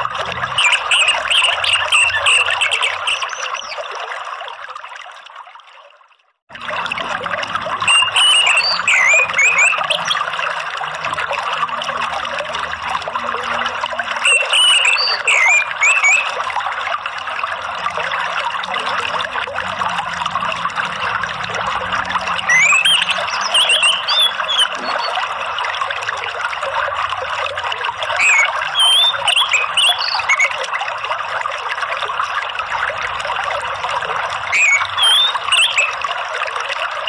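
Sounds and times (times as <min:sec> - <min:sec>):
flowing water: 0:00.0 - 0:37.0
bird chirps: 0:00.5 - 0:03.8, 0:07.9 - 0:10.2, 0:14.2 - 0:16.4, 0:22.4 - 0:25.2, 0:28.2 - 0:30.5, 0:34.5 - 0:36.0.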